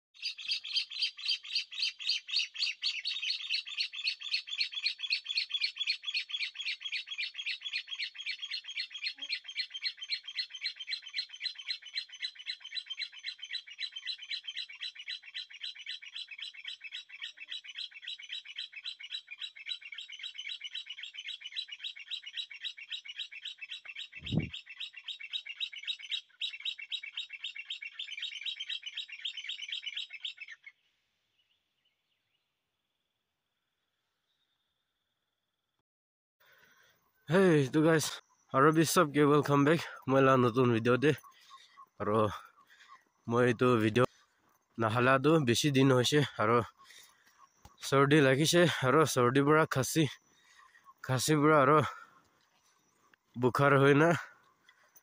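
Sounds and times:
bird chirping: 0.2s - 33.2s, 36.4s - 55.0s.

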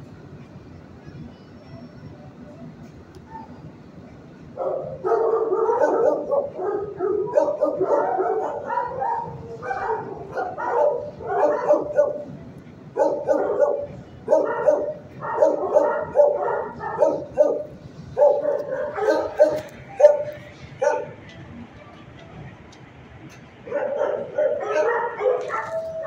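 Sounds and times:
dogs barking: 4.6s - 21.3s, 23.6s - 26.0s.

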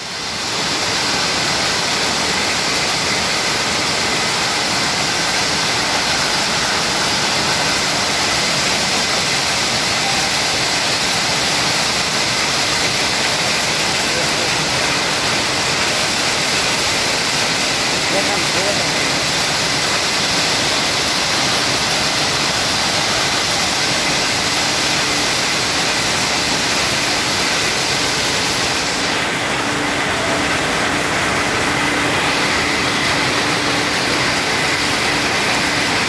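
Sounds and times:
loud machinery din: 0.6s - 36.0s.

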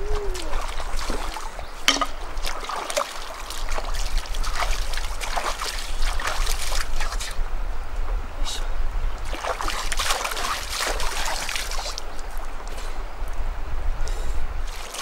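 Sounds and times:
river water splashing: 0.0s - 7.4s, 9.1s - 13.1s, 14.6s - 15.0s.

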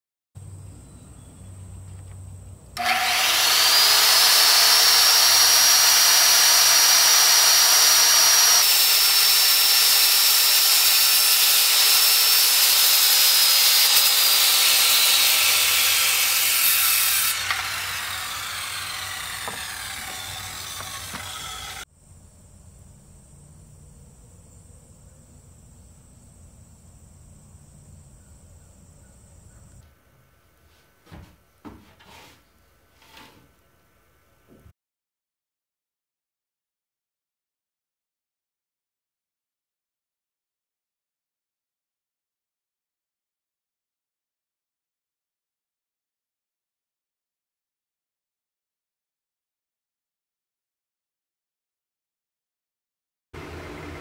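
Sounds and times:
circular saw whine: 2.8s - 21.9s, 53.4s - 54.0s
saw cutting through wood: 2.8s - 21.9s, 31.7s - 32.4s, 33.0s - 33.5s.

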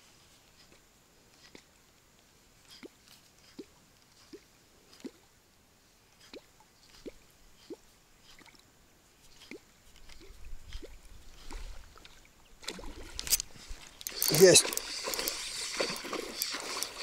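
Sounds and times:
water plops and drips: 9.4s - 13.4s.

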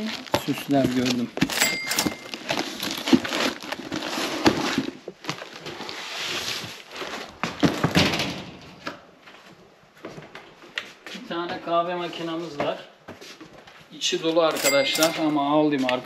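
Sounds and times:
cardboard and plastic rustling: 0.0s - 10.6s.

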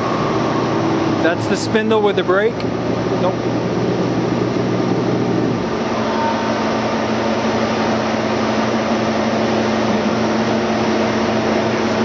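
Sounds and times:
surface grinder humming: 5.6s - 12.0s.

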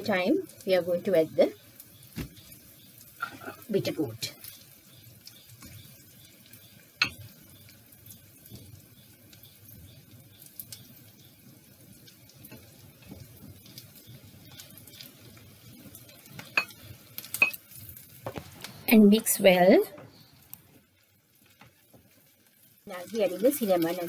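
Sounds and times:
faint frying sizzle: 0.0s - 24.0s
wooden spatula scraping plate: 3.2s - 3.7s.

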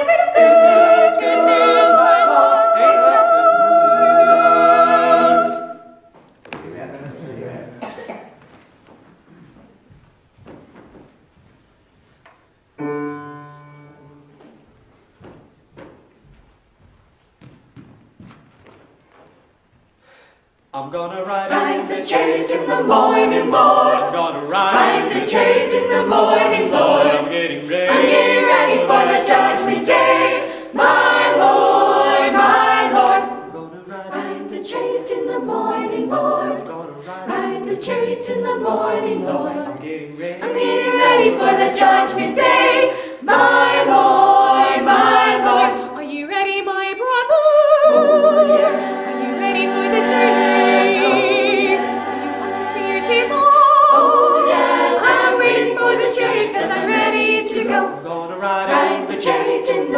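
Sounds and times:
choir singing a hymn: 0.0s - 6.1s, 21.1s - 59.9s.

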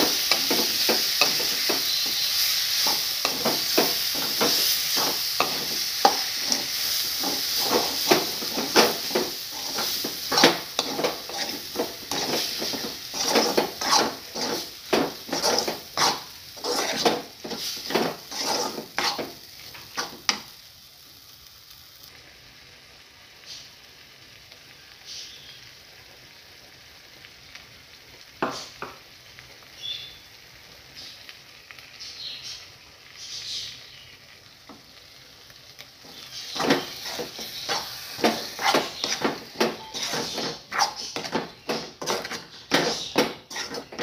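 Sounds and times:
spoon scraping iron pan: 0.0s - 20.4s, 36.1s - 44.0s.

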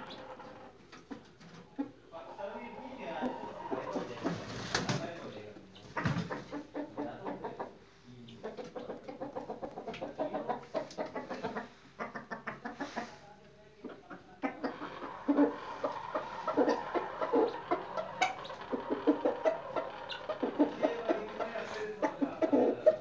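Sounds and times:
rooster clucking rapidly: 5.8s - 7.8s, 8.4s - 13.2s, 13.9s - 23.0s.

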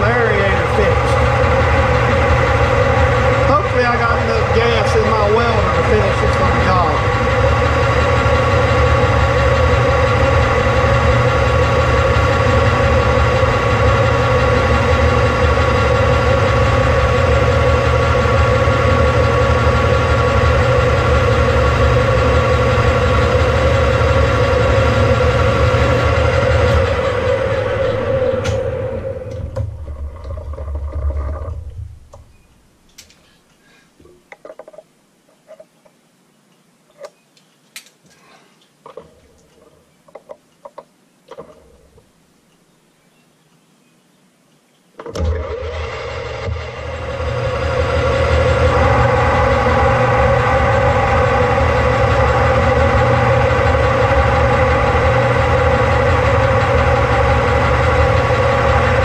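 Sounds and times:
metal lathe running: 0.0s - 31.7s, 45.0s - 59.0s.

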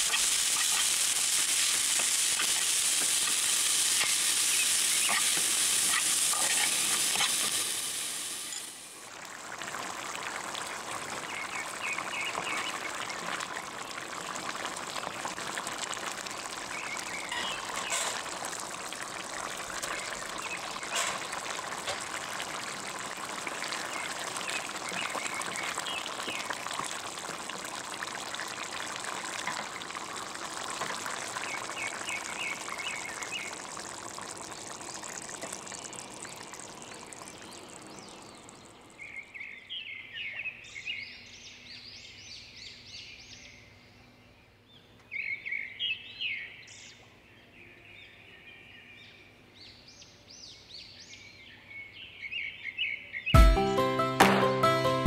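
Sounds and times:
stew bubbling and sizzling: 0.0s - 39.5s
birds chirping: 34.4s - 42.1s.

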